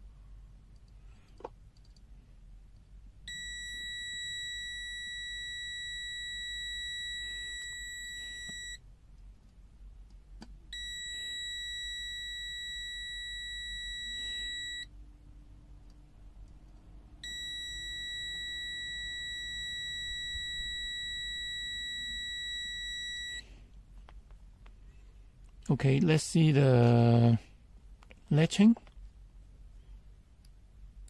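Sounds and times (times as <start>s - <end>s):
high-pitched multimeter beep: 3.3s - 8.8s, 10.7s - 14.9s, 17.2s - 23.4s.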